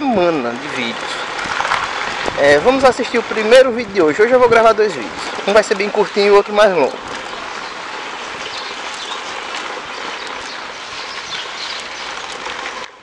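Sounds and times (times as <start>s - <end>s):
motorcycle tyre and wind noise: 1.2s - 5.5s.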